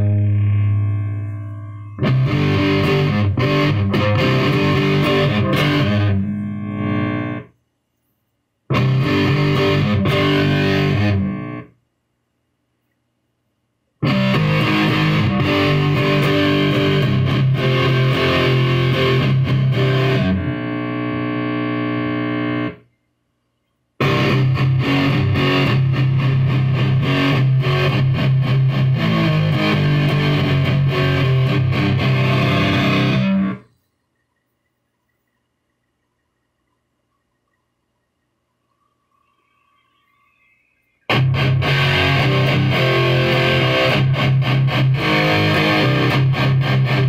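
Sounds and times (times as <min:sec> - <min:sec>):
distorted electric guitar riffs: 0:00.0 - 0:07.5, 0:08.7 - 0:11.7, 0:14.0 - 0:22.8, 0:24.0 - 0:33.7, 0:41.1 - 0:47.0.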